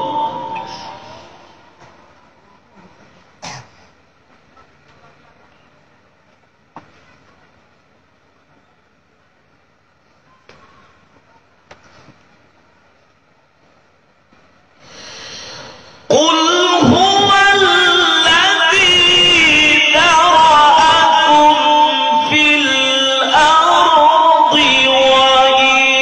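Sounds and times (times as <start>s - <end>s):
man reciting melodically into microphone: 0.0s - 1.8s, 16.0s - 26.0s.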